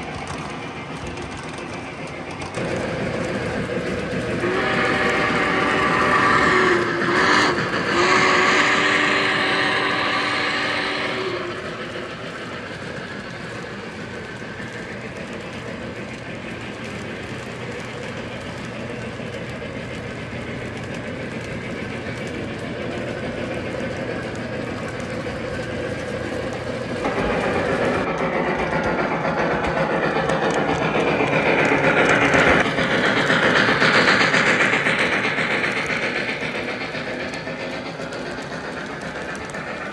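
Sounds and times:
model train motor humming: 0.0s - 39.9s
wheels clicking over rail joints: 0.0s - 39.9s.

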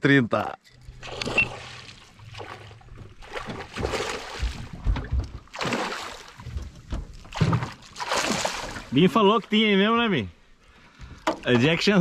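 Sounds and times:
water sloshing against boat: 0.6s - 12.0s
low thumps and knocks: 2.1s - 8.0s.

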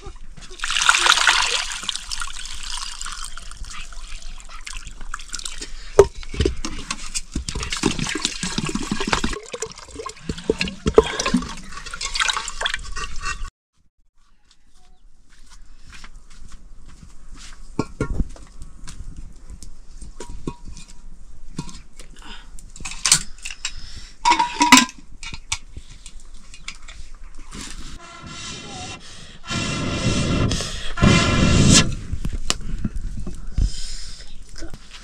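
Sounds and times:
water splashing and pouring: 0.5s - 6.0s, 6.9s - 13.3s.

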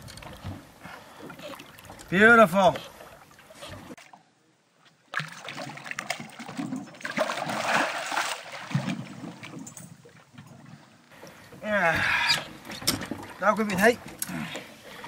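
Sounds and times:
fish thrashing and splashing water: 5.1s - 9.6s.

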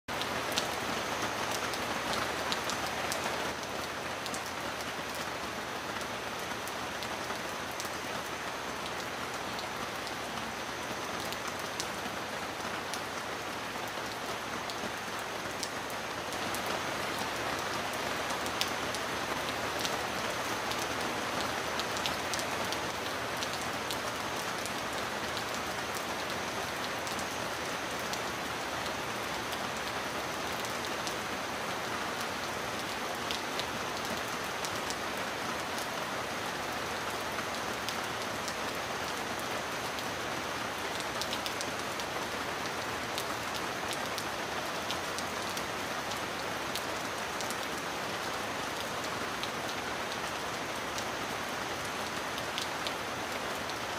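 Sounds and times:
heavy rain falling: 0.1s - 53.9s.

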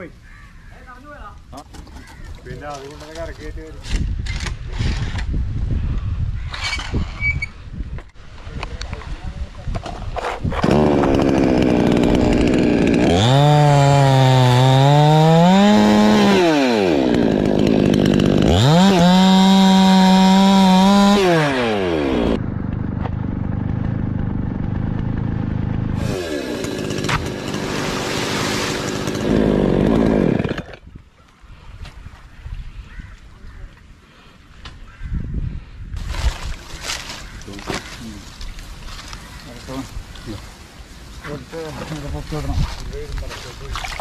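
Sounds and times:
chainsaw cutting wood: 10.1s - 22.4s, 24.7s - 30.9s.

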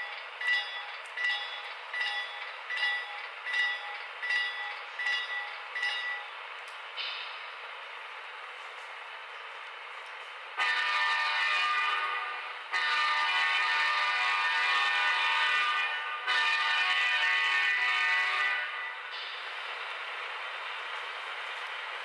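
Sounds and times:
multi-note diesel air horn: 10.6s - 19.0s.

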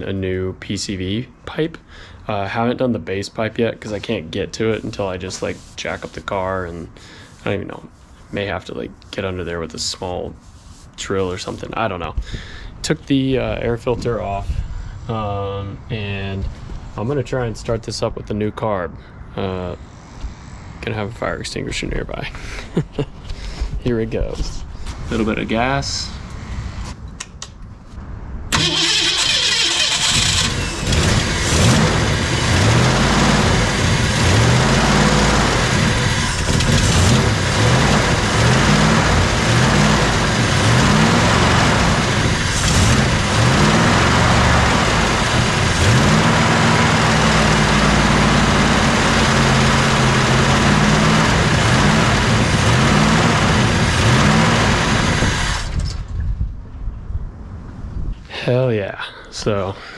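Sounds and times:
engine revving up and down: 28.5s - 56.0s
car engine starting: 28.5s - 56.2s.

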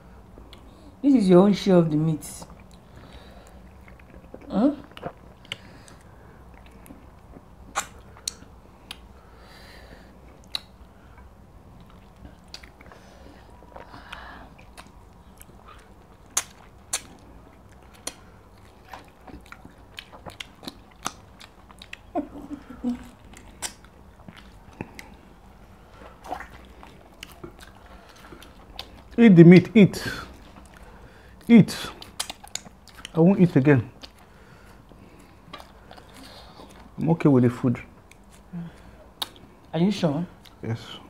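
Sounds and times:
lip smacks and mouth clicks: 2.4s - 9.1s, 10.3s - 13.0s, 13.6s - 22.1s, 23.1s - 25.2s, 25.9s - 29.2s, 31.8s - 33.2s, 34.0s - 37.0s, 38.0s - 38.5s, 39.2s - 39.7s
people chewing and biting: 2.4s - 29.2s, 30.0s - 37.0s, 37.9s - 39.7s.

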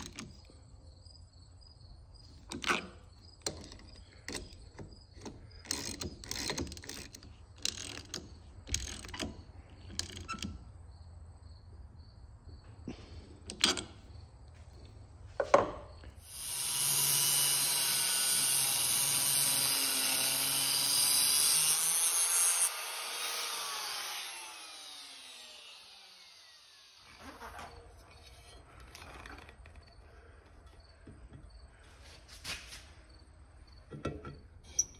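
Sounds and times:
angle grinder cutting steel: 16.2s - 28.7s
grinder winding down whine: 16.2s - 29.5s.

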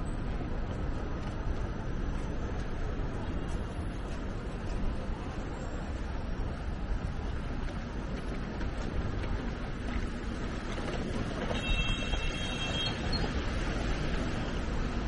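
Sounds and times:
city background rumble: 0.0s - 15.0s.

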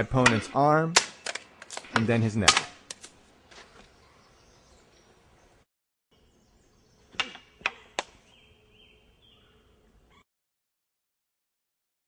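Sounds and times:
swords clashing: 2.4s - 3.1s.

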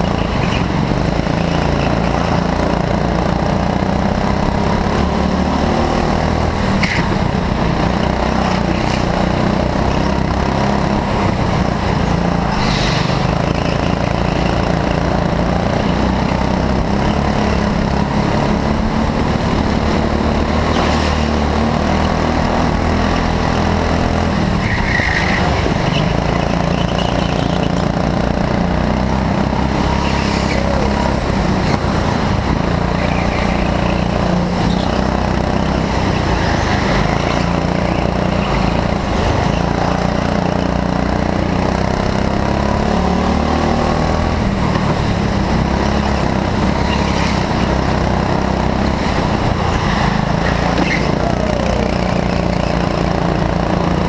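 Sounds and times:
go-kart engine running: 0.0s - 54.0s
tyre squeals: 24.6s - 27.8s, 49.8s - 51.3s.

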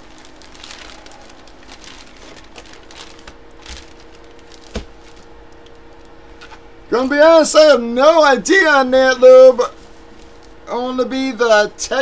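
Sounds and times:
plastic packaging crinkling: 0.0s - 6.6s, 9.8s - 10.6s.

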